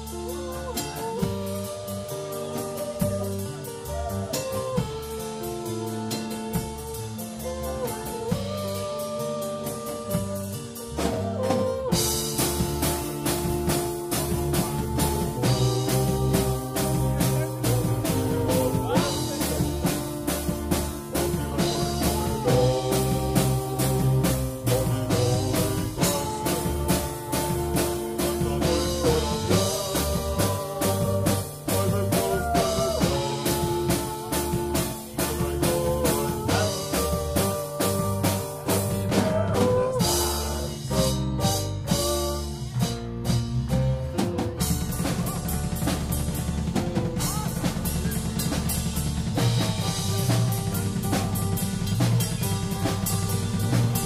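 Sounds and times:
acoustic guitar: 0.0s - 54.0s
drum kit beat: 0.0s - 54.0s
sustained melody: 11.8s - 42.7s.

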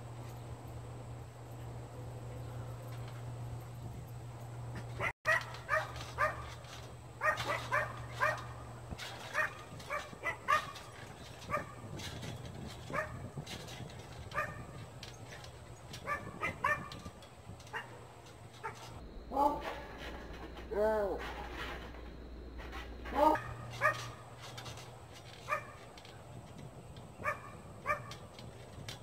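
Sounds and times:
dog yipping: 5.0s - 6.5s, 7.2s - 8.5s, 23.1s - 24.2s.

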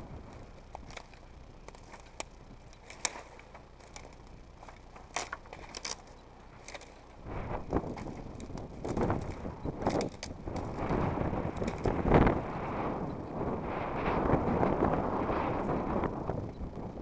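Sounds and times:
footsteps crunching on dry twigs: 0.2s - 12.4s
twigs snapping: 0.2s - 12.4s.

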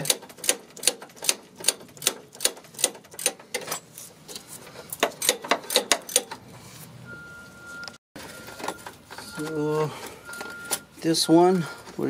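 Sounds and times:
ratcheting wrench clicking: 0.0s - 3.7s, 5.0s - 6.4s.

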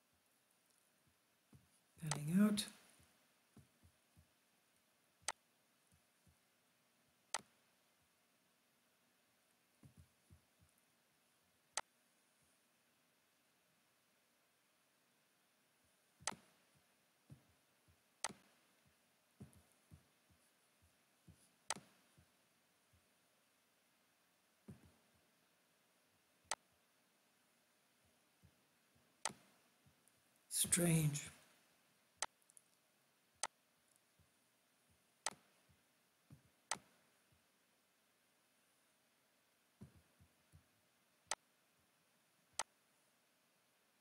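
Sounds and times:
soft low taps: 9.8s - 10.8s
computer mouse clicking: 16.2s - 16.5s, 18.2s - 18.5s, 36.7s - 36.9s.

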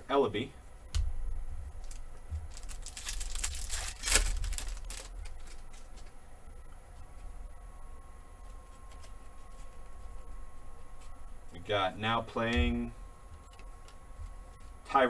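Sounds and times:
foil wrapper tearing and crinkling: 1.8s - 6.1s.

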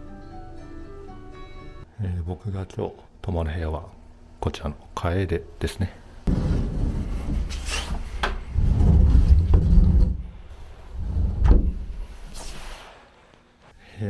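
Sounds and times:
sharp knocks and scrapes: 6.3s - 12.9s.

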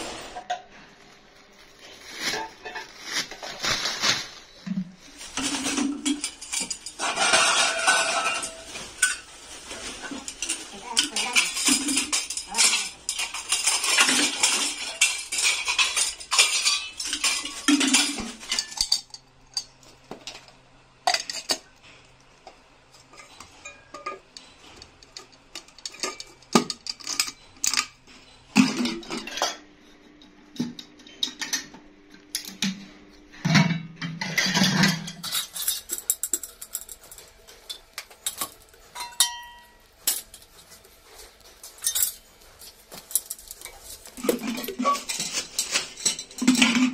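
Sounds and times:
plastic bag crinkling: 1.1s - 6.0s.

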